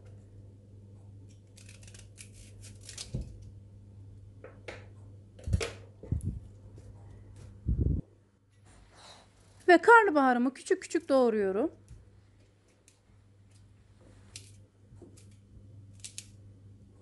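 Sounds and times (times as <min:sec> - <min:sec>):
knife cracking cauliflower florets: 0:01.3 - 0:03.5, 0:14.3 - 0:16.4.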